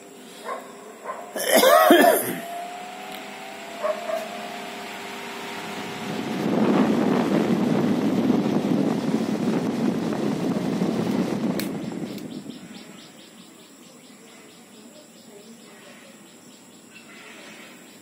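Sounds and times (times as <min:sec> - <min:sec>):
rush of air from fan blades: 0:00.0 - 0:13.0
fan motor hum: 0:00.0 - 0:13.8.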